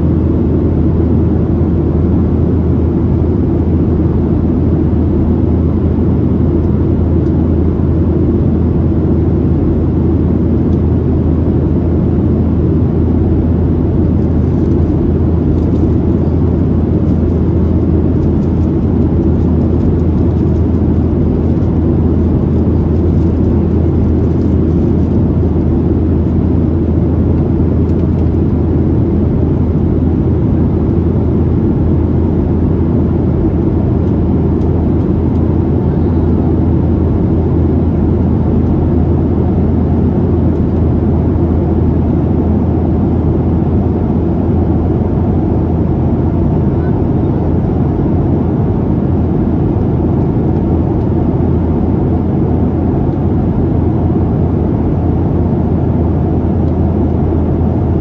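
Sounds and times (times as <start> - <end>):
airflow over fuselage: 0.0 - 58.0
jet engine drone: 0.0 - 58.0.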